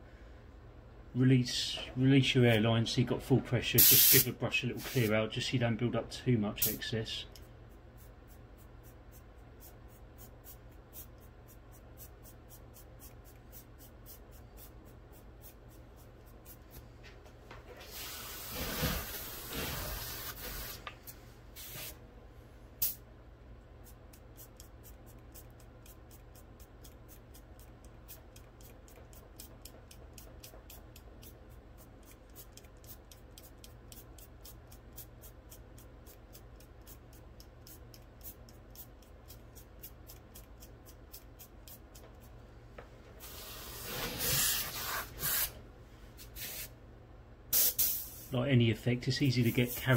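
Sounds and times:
low steady hum: 0.0 - 49.9
airbrush spraying hiss: 3.8 - 5.1, 17.8 - 20.9, 21.6 - 22.0, 43.2 - 45.6, 46.2 - 46.7, 47.5 - 48.4.

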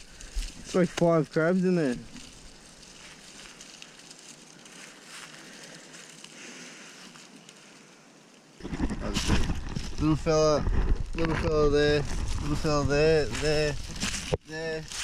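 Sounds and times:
light rustling: 0.0 - 7.9, 8.6 - 15.0
loud rumbling on microphone: 8.6 - 14.2.

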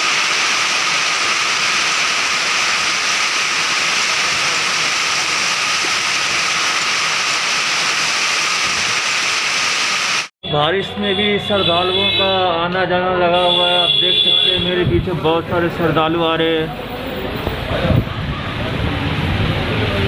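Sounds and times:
heavy rain on asphalt: 0.0 - 10.3.

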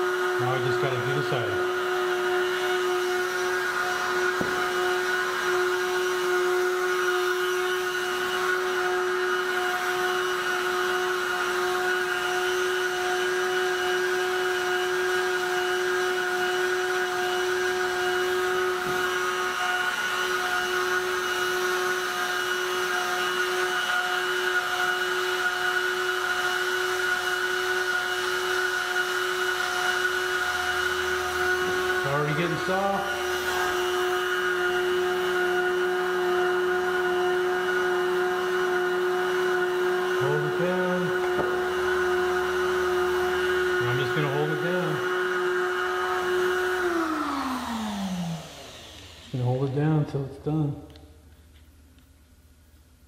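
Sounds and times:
heat gun fan whirring: 0.0 - 53.0.

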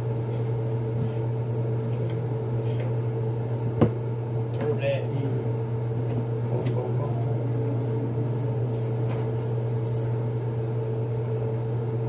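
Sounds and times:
appliance motor humming: 0.0 - 12.0.

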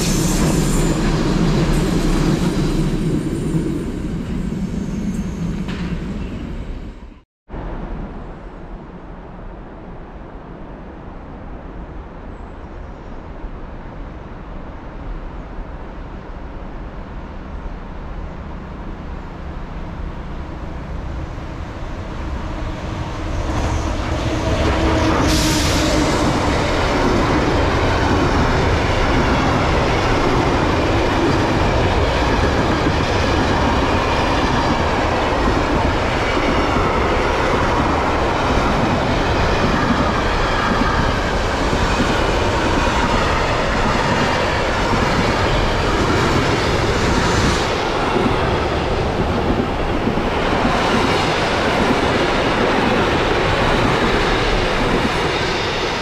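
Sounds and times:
train passing: 0.0 - 12.3, 13.3 - 56.0.

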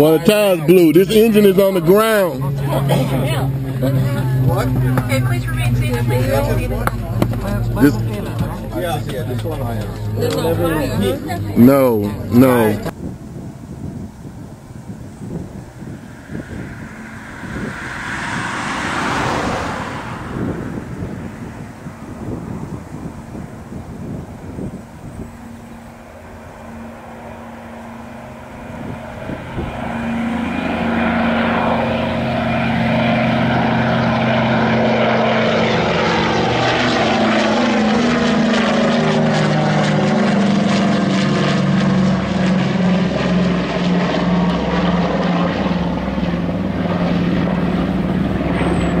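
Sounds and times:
propeller aircraft engines droning: 0.0 - 49.0.

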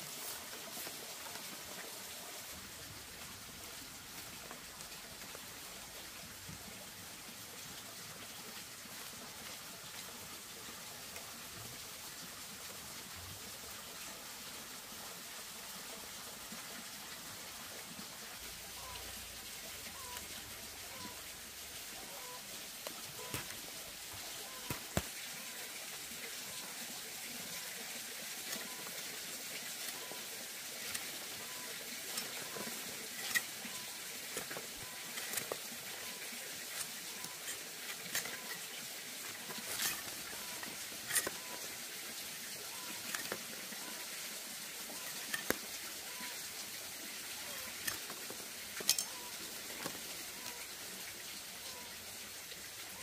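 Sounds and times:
bamboo strips clicking and rustling: 22.8 - 25.2, 47.6 - 50.6.

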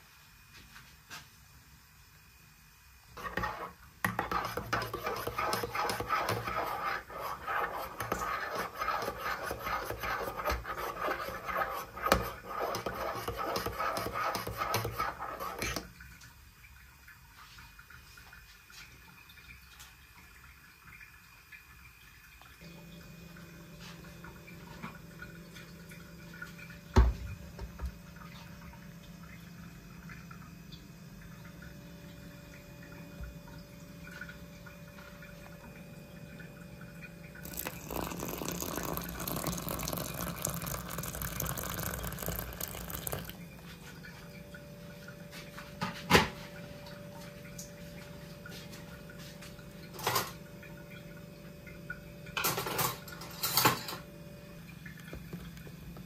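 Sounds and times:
liquid pouring onto oats: 37.4 - 43.4.

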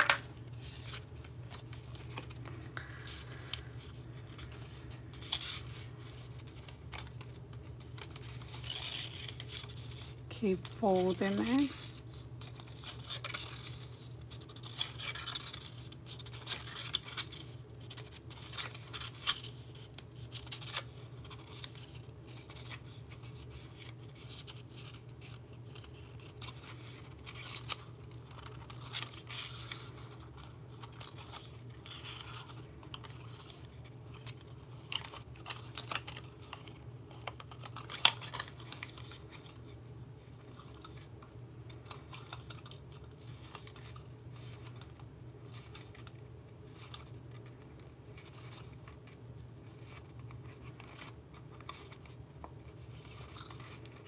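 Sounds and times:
paper crackling and rustling: 0.0 - 54.0.

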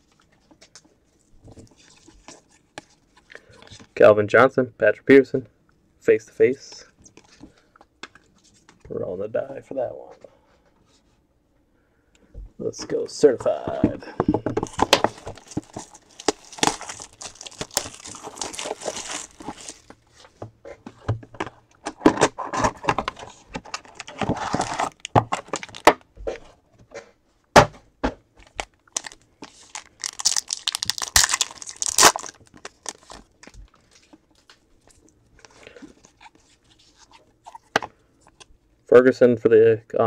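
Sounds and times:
foil packs crinkling and tearing: 14.6 - 20.0, 23.7 - 25.8, 28.6 - 34.6.

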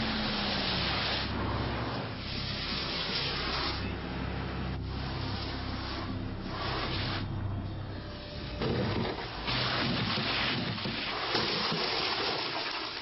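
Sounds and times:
car engine drone: 0.0 - 10.1.

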